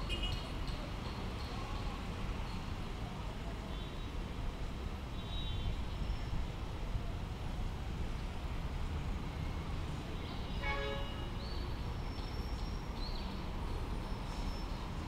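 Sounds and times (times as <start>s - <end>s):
city traffic rumble: 0.0s - 15.0s
vehicle horn toot: 10.6s - 11.3s.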